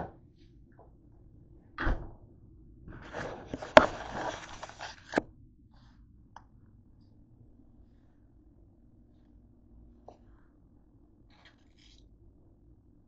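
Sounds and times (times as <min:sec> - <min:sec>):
plastic packets crinkling: 0:03.5 - 0:05.2.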